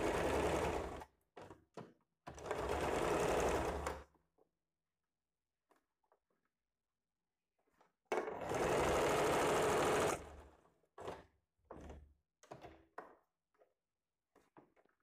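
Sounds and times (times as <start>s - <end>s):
sewing machine stitching: 0.0s - 1.1s, 2.3s - 4.0s, 8.2s - 11.3s.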